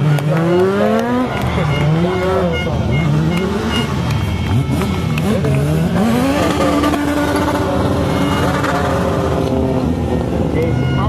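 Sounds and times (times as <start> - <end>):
race car engines revving: 0.0 - 11.0.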